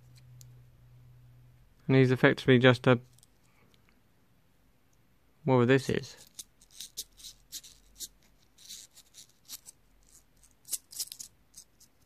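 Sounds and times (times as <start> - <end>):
light scraping of toy mechanism: 6.1 - 12.0.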